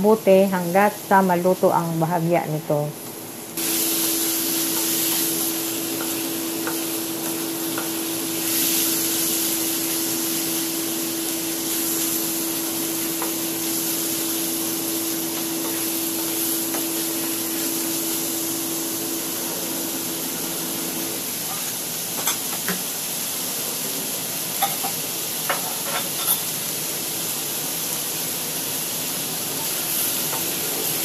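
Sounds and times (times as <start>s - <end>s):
meat sizzling in a pan: 2.9s - 31.0s
wooden spatula tapping a pan: 6.0s - 8.0s.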